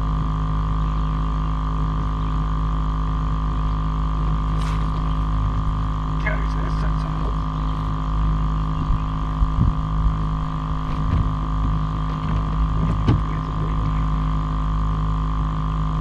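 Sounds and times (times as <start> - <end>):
electric boat motor humming: 0.0 - 16.0
short low knocks: 10.8 - 14.0.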